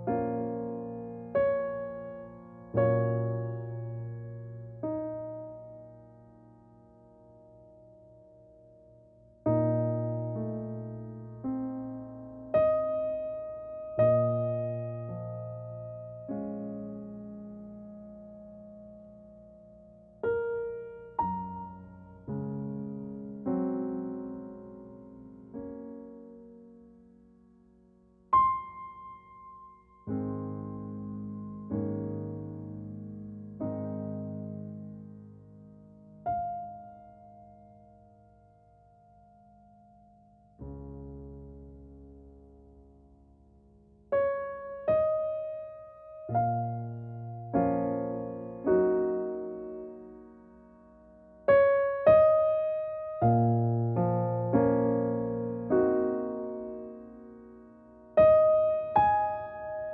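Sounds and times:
slow gentle piano chords: 0.0 - 59.9.

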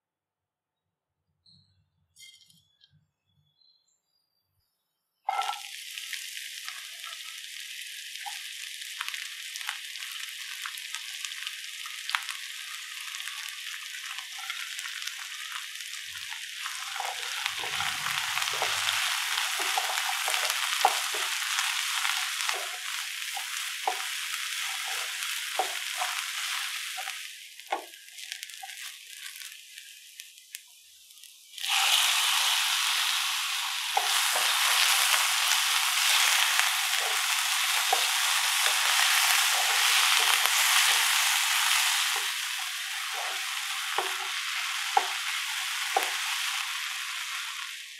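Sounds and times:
onions sizzling in oil: 5.3 - 47.9
spatula scraping and tapping: 16.7 - 27.9, 33.9 - 46.3.

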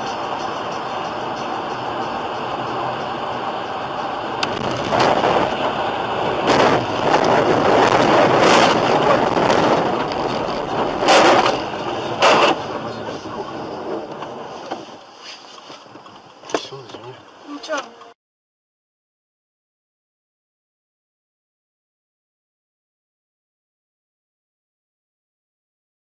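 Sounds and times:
road and wind noise: 0.0 - 18.2.

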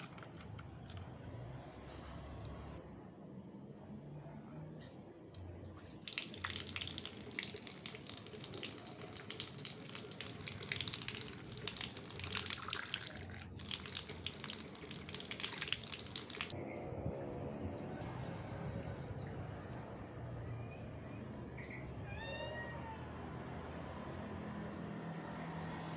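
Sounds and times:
water running from outdoor tap: 6.0 - 16.6.

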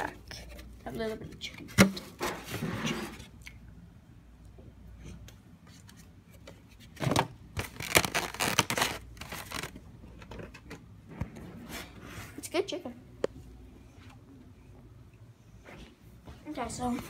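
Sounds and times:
plastic bag crinkling: 7.6 - 9.8.

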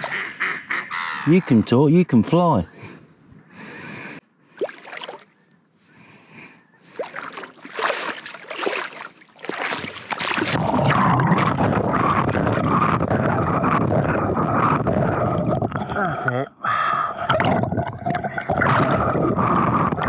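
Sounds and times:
water splashing from wading: 0.0 - 0.5, 4.5 - 5.4, 6.9 - 10.8.

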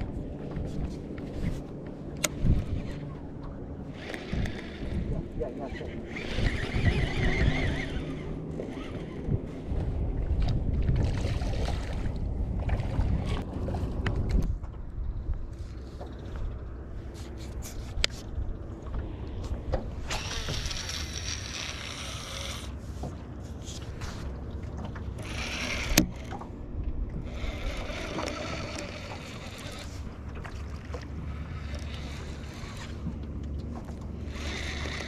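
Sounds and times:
water lapping against boat: 0.0 - 35.0
wind rumbling on microphone: 0.0 - 35.0
fishing reel clicks: 20.1 - 22.7, 27.3 - 29.9, 34.3 - 35.0.

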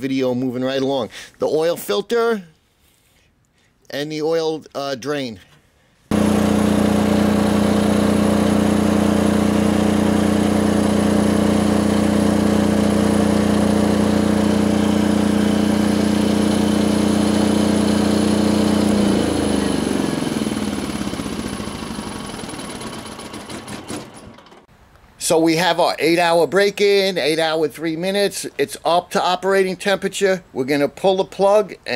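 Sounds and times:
diesel generator running: 6.1 - 24.7
generator winding down: 6.1 - 24.7.

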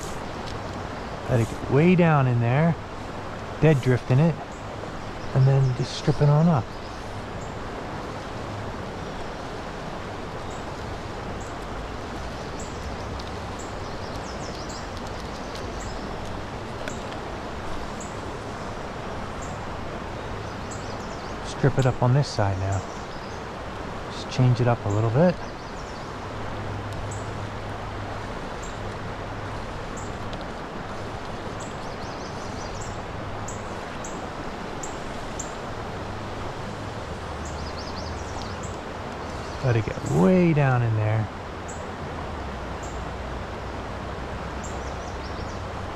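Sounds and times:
creek water flowing: 0.0 - 45.9
bird chirping: 12.3 - 16.2, 24.6 - 26.4, 31.6 - 34.2, 37.4 - 41.9, 44.6 - 45.7.

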